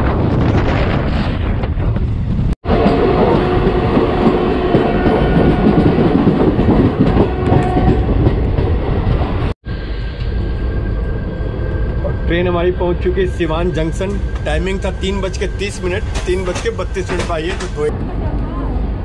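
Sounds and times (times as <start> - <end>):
wind rushing on microphone: 0.0 - 9.5
train wheels clattering on rails: 2.8 - 9.4, 14.0 - 17.9.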